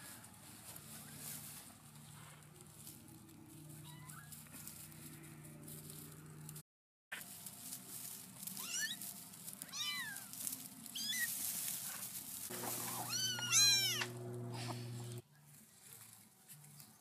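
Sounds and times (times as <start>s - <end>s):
kittens mewing: 12.5s - 15.2s
low steady hum: 12.5s - 15.2s.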